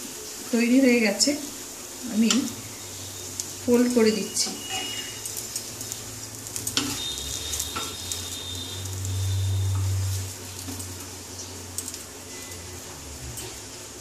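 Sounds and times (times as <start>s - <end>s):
oil sizzling in frying pan: 0.0s - 14.0s
metal spatula scraping pan: 4.3s - 5.4s, 6.7s - 10.1s.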